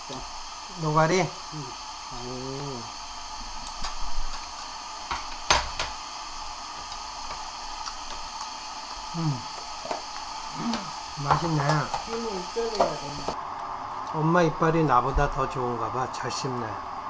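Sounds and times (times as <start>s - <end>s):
faint room hum: 0.0s - 17.0s
person humming: 1.6s - 2.9s, 9.1s - 9.5s, 10.5s - 11.0s.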